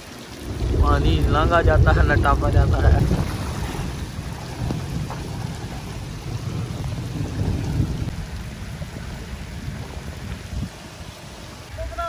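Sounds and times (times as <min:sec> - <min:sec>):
constant low rumble: 0:00.0 - 0:12.0
heavy rain falling on water: 0:00.0 - 0:12.0.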